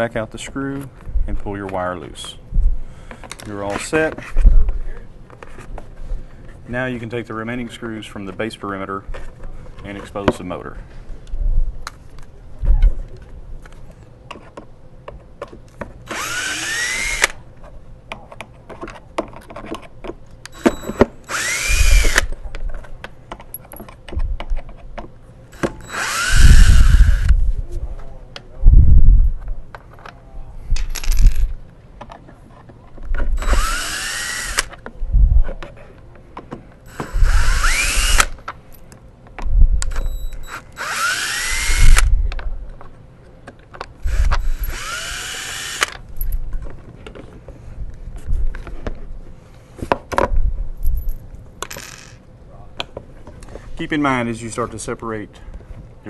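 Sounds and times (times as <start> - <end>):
cordless drill whining: 16.1 - 17.4, 20.5 - 22.3, 25.6 - 27.3, 33.4 - 34.7, 36.9 - 38.4, 40.0 - 42.1, 44.0 - 45.9
handling clicks and knocks: 22.4 - 25.8.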